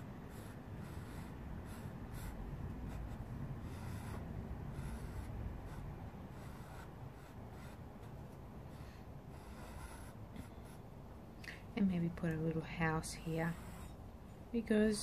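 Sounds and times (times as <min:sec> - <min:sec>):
pencil scratching on paper: 0:00.0 - 0:10.9, 0:12.9 - 0:14.0.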